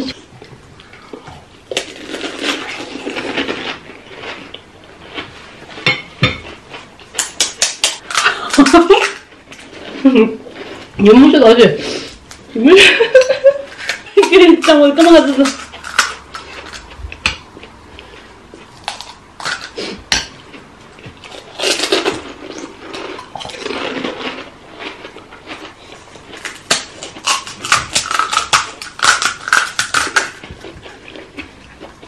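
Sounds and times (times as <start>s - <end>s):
crisp shells cracking: 26.4s - 30.5s.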